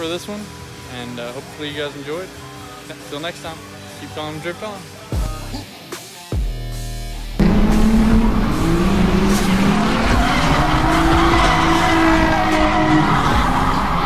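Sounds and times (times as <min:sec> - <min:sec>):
car engine at high revs: 0:07.4 - 0:14.0
tyres squealing and skidding: 0:07.4 - 0:14.0.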